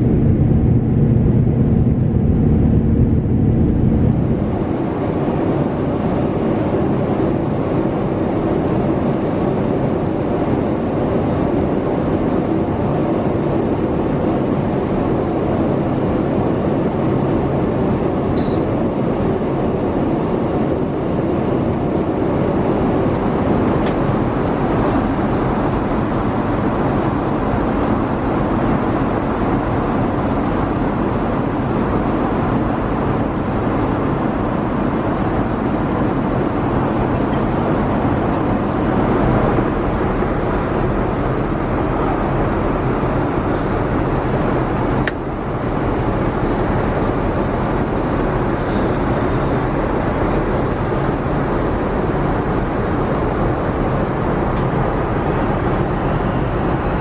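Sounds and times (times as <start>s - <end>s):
low rumble: 0.0s - 5.0s
airliner cabin air rush: 0.0s - 57.0s.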